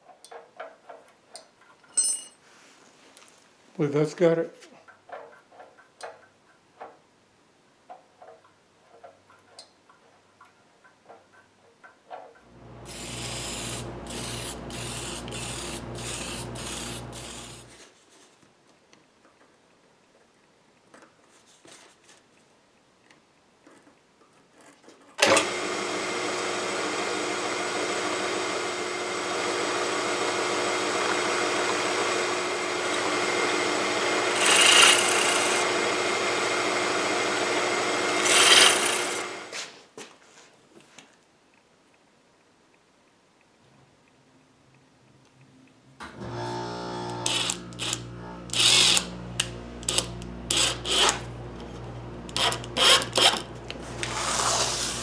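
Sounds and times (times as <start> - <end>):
power tool pulsing hum: 12.5 - 17.8, 25.3 - 39.5, 46.0 - 55.0
drill press motor running: 12.6 - 17.7, 25.2 - 39.5, 46.0 - 55.0.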